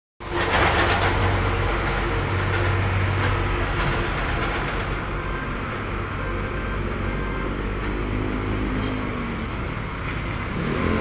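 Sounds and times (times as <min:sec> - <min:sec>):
heavy trucks passing: 0:00.2 - 0:11.0
traffic engine rumble: 0:00.2 - 0:11.0.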